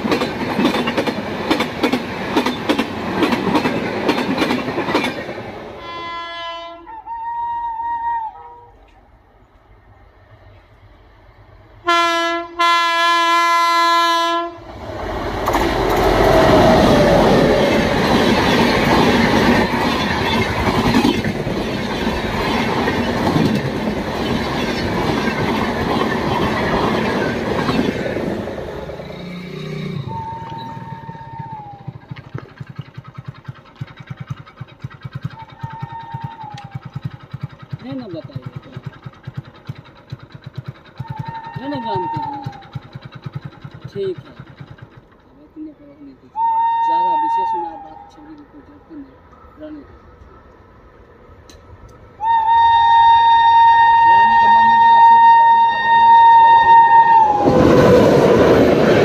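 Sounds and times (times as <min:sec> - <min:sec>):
train passing with clickety-clack: 0:00.0 - 0:06.9, 0:08.6 - 0:59.0
train horn blasts: 0:05.8 - 0:08.8, 0:11.8 - 0:14.7, 0:29.2 - 0:31.9, 0:46.4 - 0:48.2, 0:52.2 - 0:57.6.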